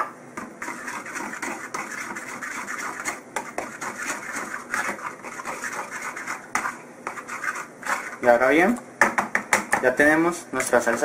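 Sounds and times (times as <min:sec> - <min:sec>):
fork stirring thick sauce: 0:00.4 - 0:08.4
fork knocking against wooden bowl: 0:09.0 - 0:09.9.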